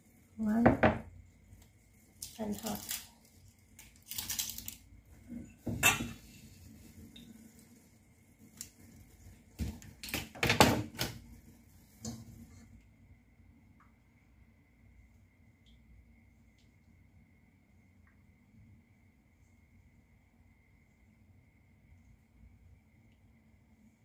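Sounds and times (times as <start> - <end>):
kitchen items clattering: 4.1 - 7.3.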